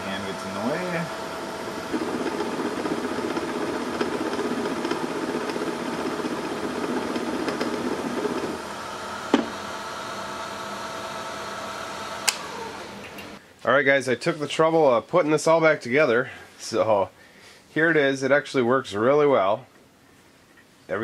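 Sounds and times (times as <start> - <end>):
drill bit cutting metal: 0.0 - 12.5
motor humming: 0.0 - 13.4
sharp click: 12.2 - 13.3.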